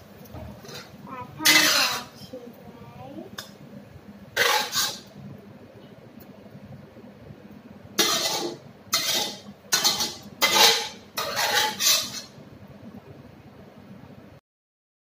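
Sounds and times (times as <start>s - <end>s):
metal spatula scraping wok: 0.5s - 2.3s, 4.3s - 5.1s, 8.0s - 12.4s.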